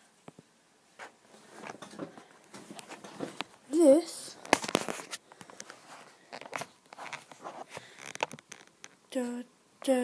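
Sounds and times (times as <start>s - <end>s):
camera handling noise: 4.4s - 8.9s.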